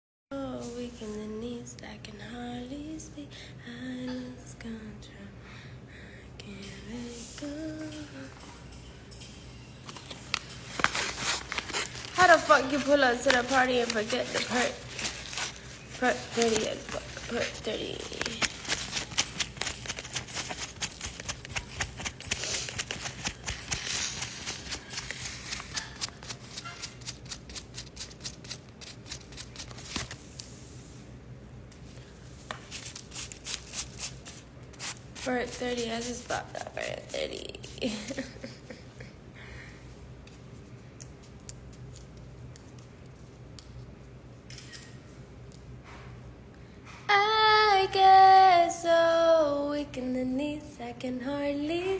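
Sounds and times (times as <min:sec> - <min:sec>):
low steady hum: 0:00.3 - 0:51.9
dry leaf crinkling: 0:10.7 - 0:27.2.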